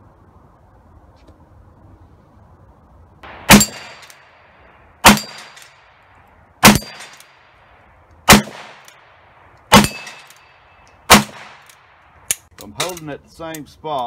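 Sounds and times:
metallic ring of steel targets: 3.5s - 4.4s, 5.0s - 5.9s, 6.6s - 7.3s, 9.7s - 11.8s.

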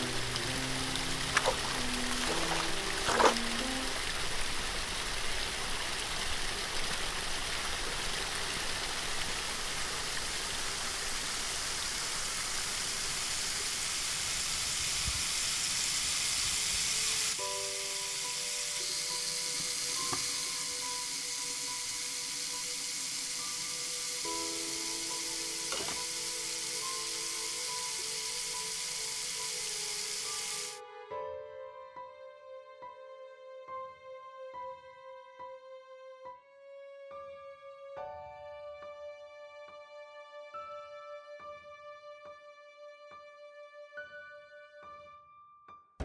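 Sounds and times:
sustained music notes: 0.0s - 4.8s
small waterfall splashing: 0.0s - 30.8s.

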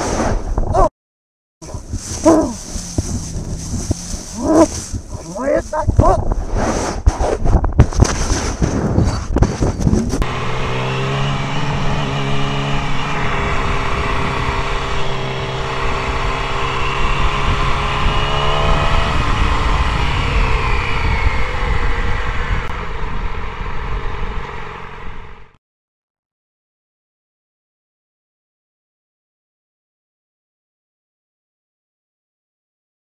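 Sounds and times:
motorcycle engine running: 1.6s - 6.3s, 9.5s - 23.3s
wind rush: 1.6s - 10.3s, 13.2s - 25.5s
tumbling camera clatter: 7.3s - 10.2s.

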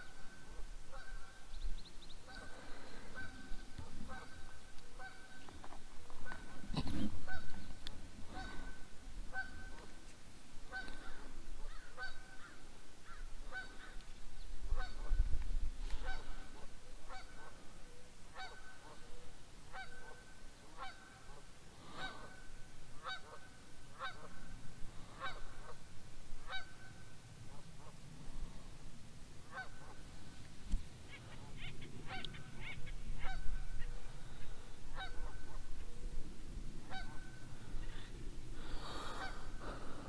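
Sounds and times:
bird calling: 0.0s - 10.0s, 10.6s - 15.2s, 29.5s - 36.3s, 36.9s - 40.0s.

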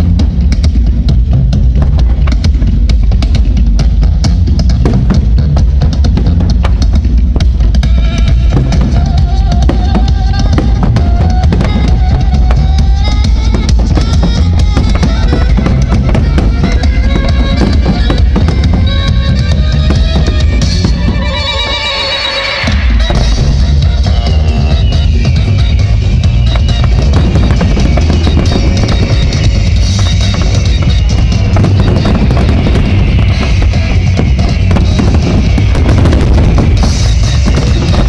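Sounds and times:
fireworks bangs and crackle: 0.0s - 38.0s
loud music track: 0.0s - 38.0s
low rumble: 22.7s - 38.0s.

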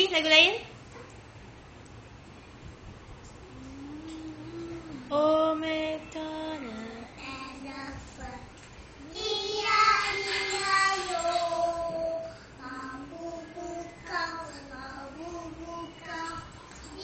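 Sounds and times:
young children singing: 6.6s - 17.0s.

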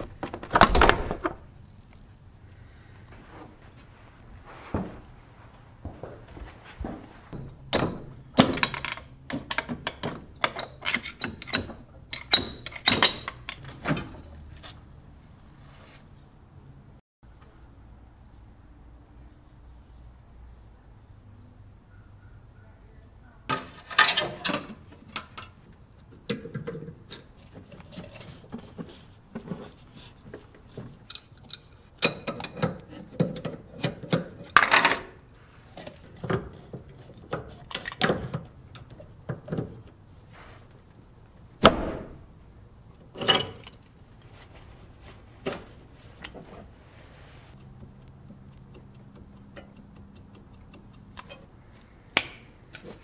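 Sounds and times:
metal car parts clanking: 7.4s - 14.4s, 23.5s - 40.1s, 42.9s - 44.6s.

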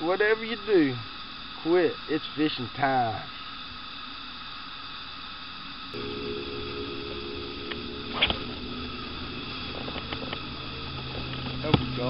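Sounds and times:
low electric hum: 6.0s - 12.0s.

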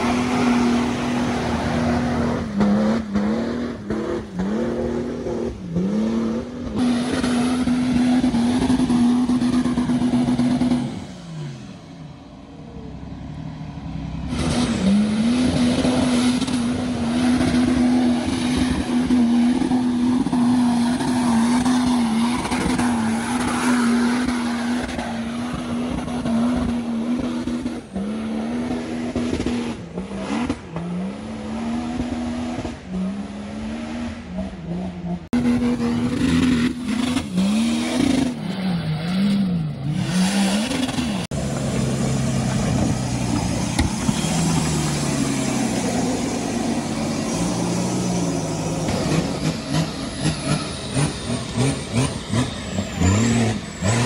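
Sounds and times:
tyres churning through mud: 0.0s - 11.4s, 14.0s - 54.0s
off-road engines revving: 0.0s - 54.0s.

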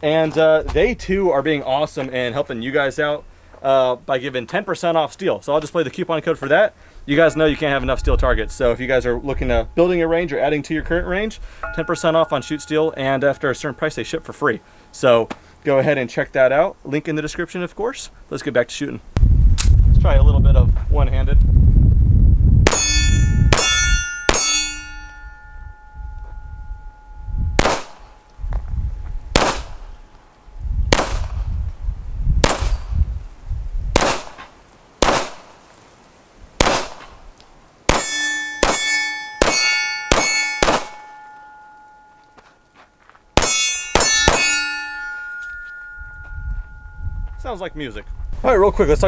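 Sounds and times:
steel plates clanging: 11.5s - 15.0s, 22.7s - 27.2s, 37.9s - 47.7s
pistol shots: 27.6s - 28.0s, 29.4s - 29.8s, 32.4s - 32.9s, 34.0s - 34.4s, 35.0s - 35.5s, 36.6s - 37.2s, 37.9s - 41.2s, 43.4s - 44.9s.

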